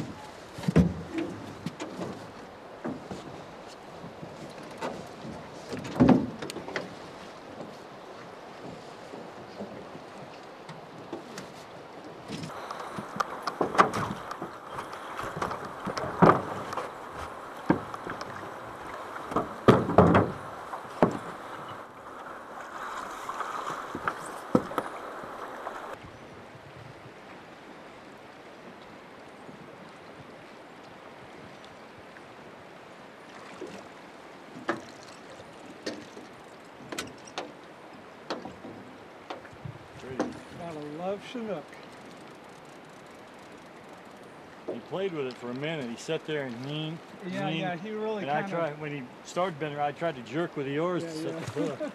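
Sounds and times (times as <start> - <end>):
knocks and thumps in boat: 0.0 - 22.1, 22.7 - 26.0, 33.4 - 47.0
water rushing: 0.0 - 51.9.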